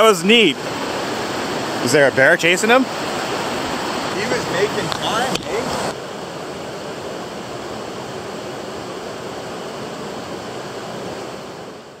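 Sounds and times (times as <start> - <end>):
river rapids rushing: 0.0 - 12.0.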